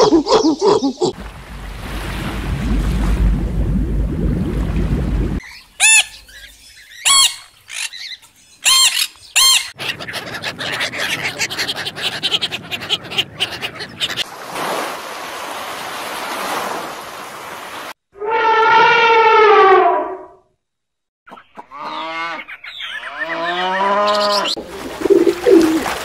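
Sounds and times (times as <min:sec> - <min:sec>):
splashing in shallow water: 0:01.1 - 0:05.6, 0:14.2 - 0:18.0, 0:24.6 - 0:26.0
low rushing water: 0:01.1 - 0:06.5, 0:24.6 - 0:26.0
ducks quacking: 0:05.5 - 0:06.4, 0:08.6 - 0:14.2.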